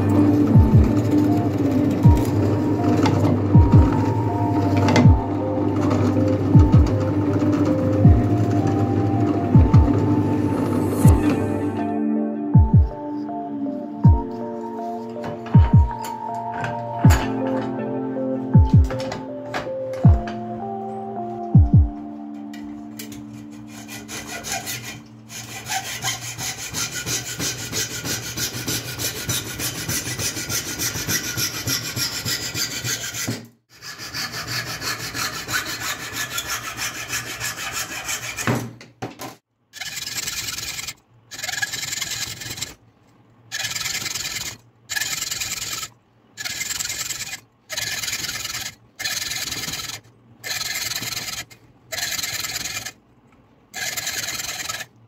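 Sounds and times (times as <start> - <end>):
hacksaw cutting wood: 23.0 - 38.7, 39.8 - 42.8, 43.5 - 53.0, 53.8 - 54.9.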